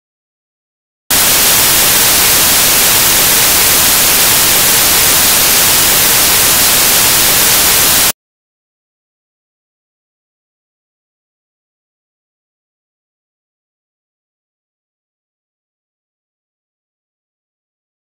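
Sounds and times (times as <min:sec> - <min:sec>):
loud white noise hiss: 0:01.1 - 0:08.2.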